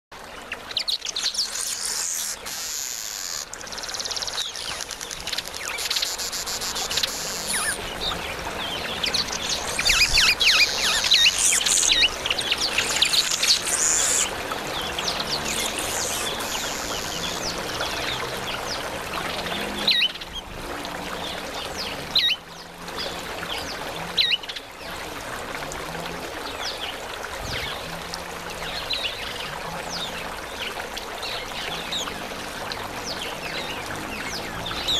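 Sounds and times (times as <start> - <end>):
birds chattering: 1.1 - 8.1, 9.0 - 14.3, 15.2 - 17.6.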